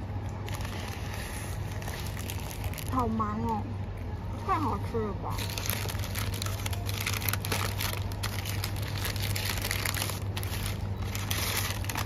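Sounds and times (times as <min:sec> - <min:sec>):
steady low hum: 0:00.0 - 0:12.0
paper wrapper crinkling: 0:00.4 - 0:03.2, 0:05.3 - 0:12.0.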